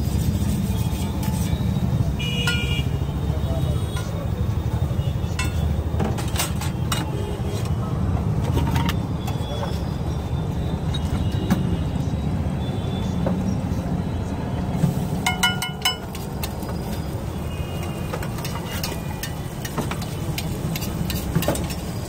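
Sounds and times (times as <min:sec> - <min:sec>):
street background noise: 0:00.0 - 0:22.0
spoon clinking on steel tin: 0:15.3 - 0:16.6.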